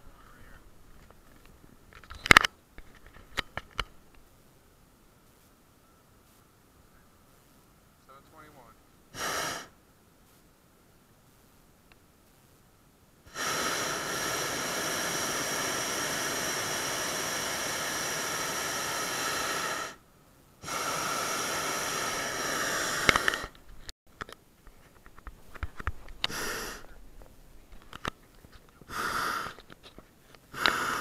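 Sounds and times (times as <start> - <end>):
propane burner roaring: 9.1 - 9.7, 13.2 - 20.0, 20.6 - 23.6, 25.8 - 26.8, 28.9 - 29.8, 30.5 - 31.0.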